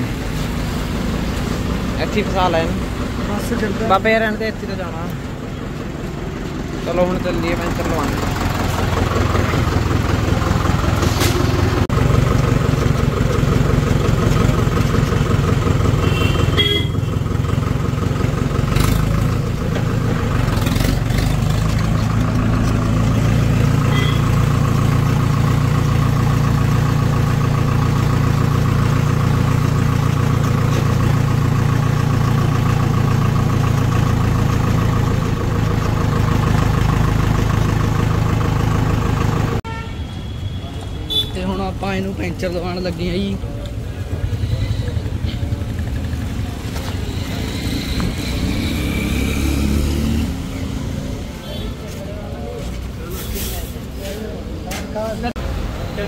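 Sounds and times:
tractor diesel engine running: 0.0 - 54.6.

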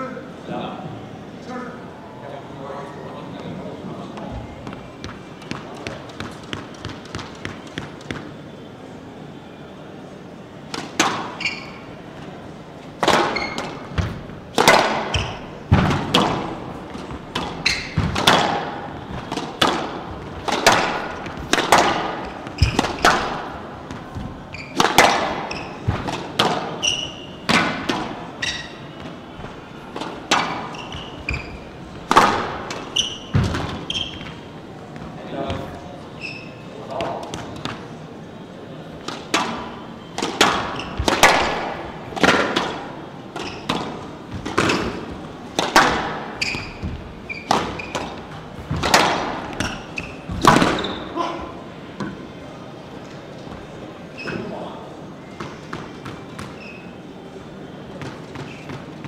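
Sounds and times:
shoes squeaking on court floor: 3.4 - 8.5, 10.7 - 38.0, 39.0 - 52.3, 53.3 - 59.0
squash ball hitting walls: 4.6 - 8.4, 10.6 - 12.3, 12.9 - 35.8, 39.0 - 52.2.

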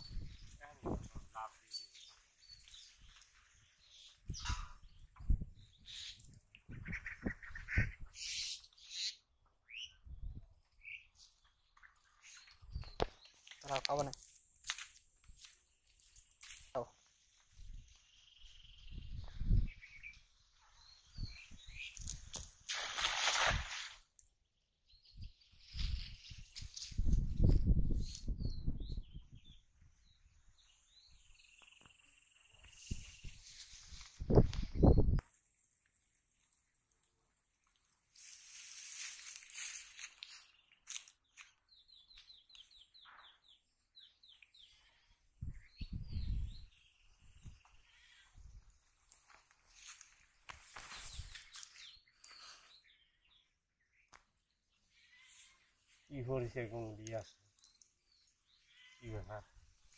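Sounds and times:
faint bird chirps: 15.9 - 22.2, 40.3 - 48.6, 50.8 - 59.7.

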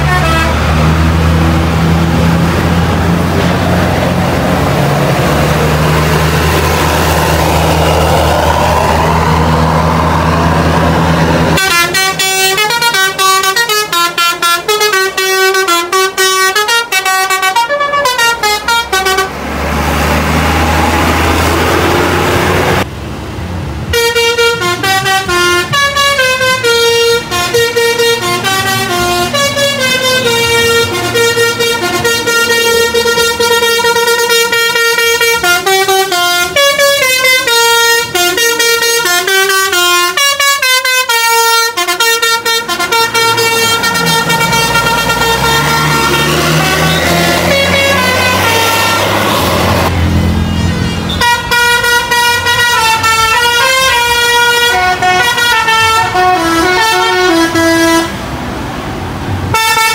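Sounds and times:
musical bus horns playing tunes: 0.0 - 22.9, 23.9 - 58.5, 59.4 - 59.9.

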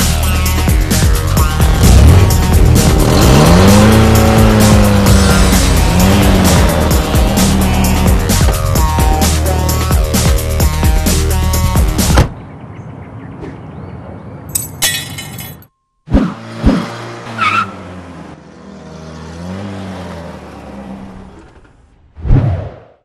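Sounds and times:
music: 0.0 - 12.3
car engine running: 0.2 - 12.0.

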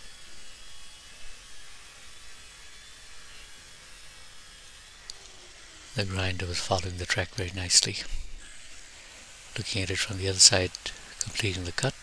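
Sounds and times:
faint hiss: 5.0 - 12.0.

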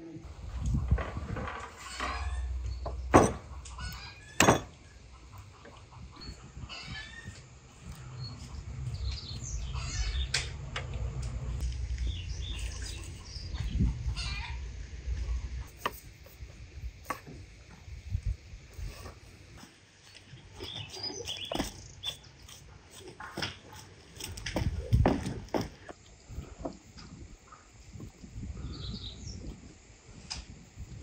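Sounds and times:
birds chirping: 0.3 - 15.7, 20.0 - 23.0.

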